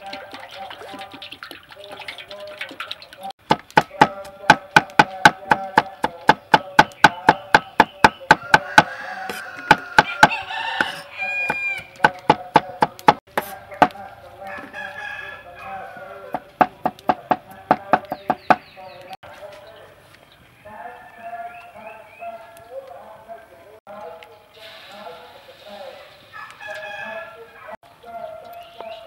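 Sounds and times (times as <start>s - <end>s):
chickens clucking: 0.0s - 19.6s
cleaver chopping on wooden board: 3.4s - 14.0s, 16.3s - 18.7s
rooster crowing: 8.3s - 12.0s, 14.4s - 16.3s, 26.3s - 28.6s.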